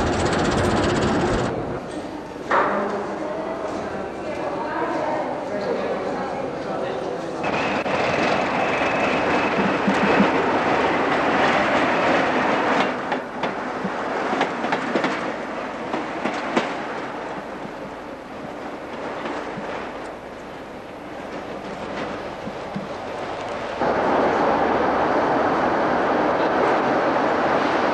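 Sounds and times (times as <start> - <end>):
train running: 0.0 - 5.1, 6.6 - 27.9.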